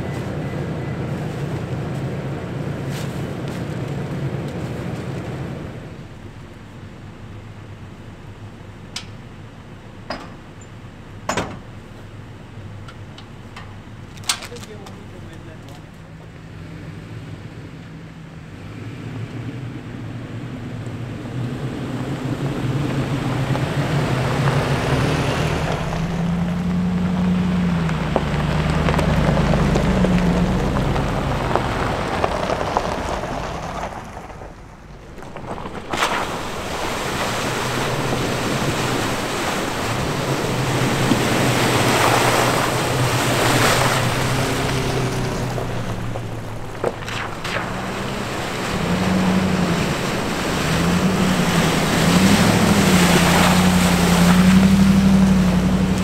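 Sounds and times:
off-road vehicle engine: 0.0 - 56.0
loud rushing noise: 35.6 - 55.6.

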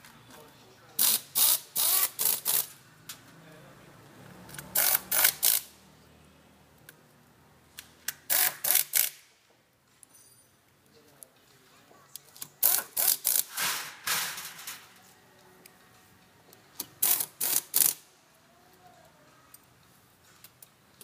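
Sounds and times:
impact wrench rattling bursts: 1.0 - 2.8, 4.5 - 5.8, 8.0 - 9.2, 12.6 - 14.8, 16.9 - 18.0.

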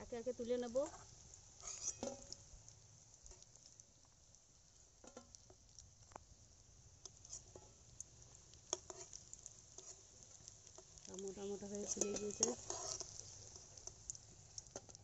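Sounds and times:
metal spatula clinking on steel: 11.8 - 13.2.

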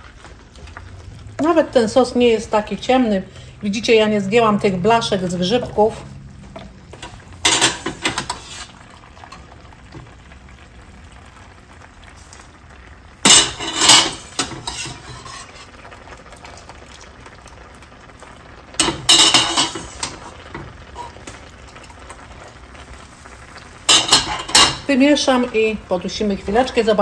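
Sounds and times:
pan sizzling: 0.0 - 27.0
metal spoon scraping pot: 6.9 - 8.8, 13.3 - 15.7, 18.8 - 20.4, 23.9 - 24.9.

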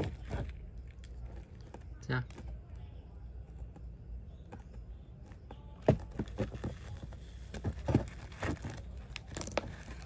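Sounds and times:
soil crumbling and rustling: 7.6 - 10.0.

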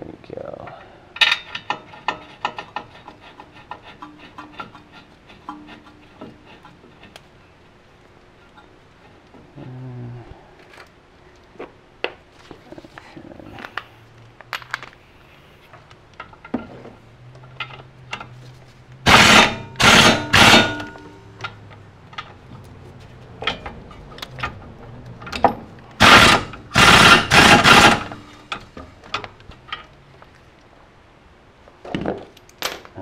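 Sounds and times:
tool and bolts clicking: 1.2 - 7.2, 19.1 - 22.4
air impact wrench bursts: 19.1 - 21.1, 26.0 - 28.3.

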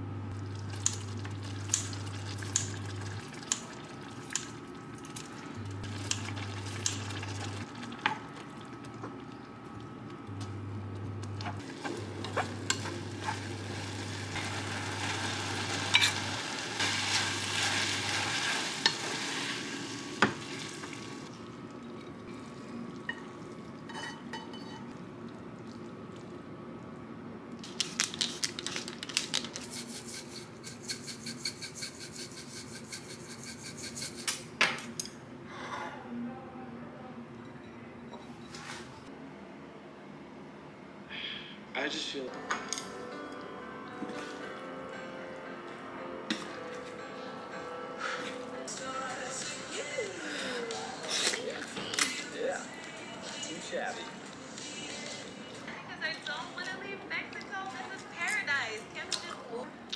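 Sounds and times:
low hum of induction hob: 0.0 - 28.5
noodles sizzling in a frying pan: 11.7 - 21.3.

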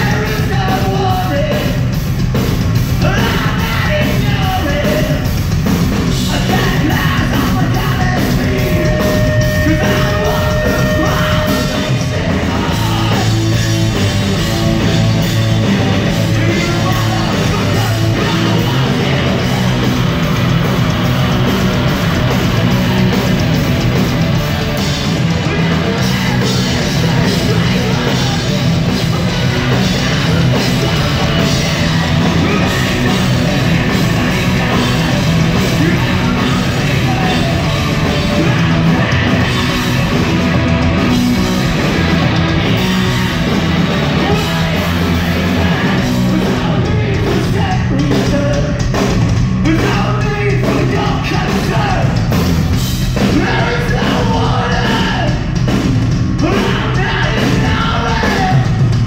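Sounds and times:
punk rock band playing: 0.0 - 59.0
shouted vocals: 3.0 - 5.2, 6.2 - 13.9, 15.6 - 20.3, 25.1 - 41.2, 41.8 - 48.6, 49.6 - 52.3, 53.2 - 55.6, 56.4 - 58.8.

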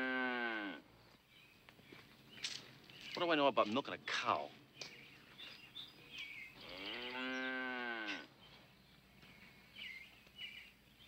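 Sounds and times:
cow mooing: 0.0 - 0.8, 6.6 - 8.3.

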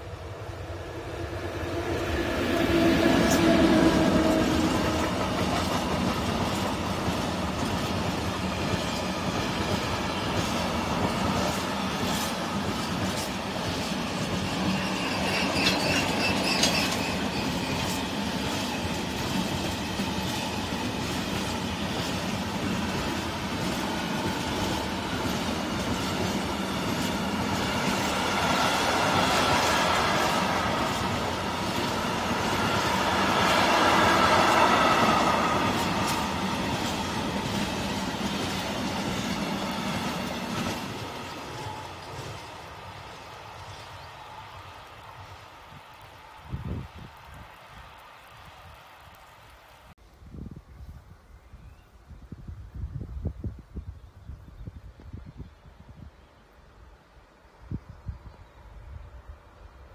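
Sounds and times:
train wheels clattering over rails: 2.5 - 43.9
high-pitched wheel squeal: 14.6 - 18.0.

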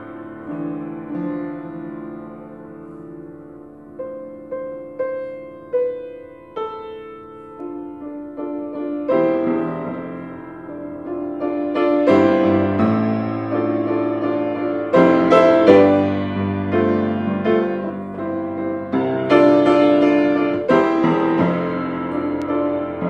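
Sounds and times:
grand piano melody: 0.0 - 23.0.

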